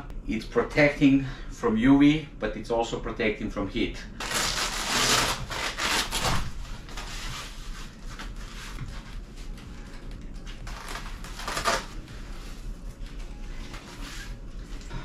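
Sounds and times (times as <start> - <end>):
fabric cover rustling and scraping: 4.2 - 9.5, 10.5 - 14.9.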